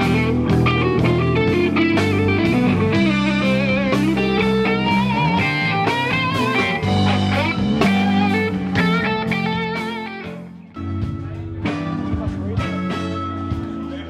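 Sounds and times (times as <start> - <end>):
electric guitar playing: 0.0 - 14.0
sustained bass notes: 0.0 - 14.0.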